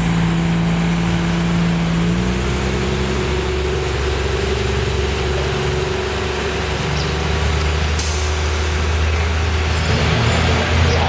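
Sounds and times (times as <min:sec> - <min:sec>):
bus diesel engine rumble: 0:00.0 - 0:11.0
air brakes hissing: 0:07.9 - 0:09.9.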